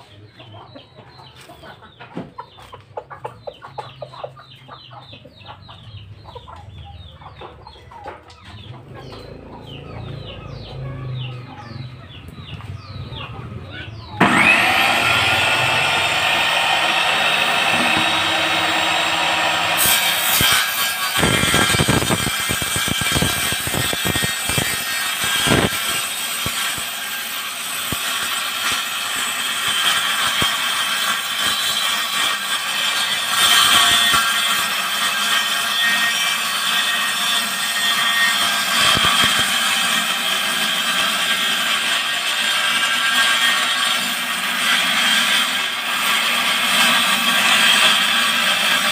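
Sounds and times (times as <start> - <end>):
table saw cutting wood: 14.0 - 48.9.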